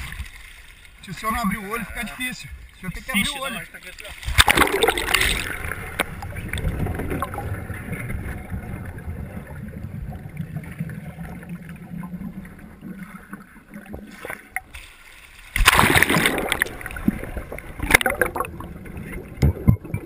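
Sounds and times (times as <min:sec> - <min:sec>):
muffled underwater water rumble: 0:04.2 - 0:14.7, 0:15.6 - 0:20.0
underwater bubbles: 0:04.2 - 0:20.0.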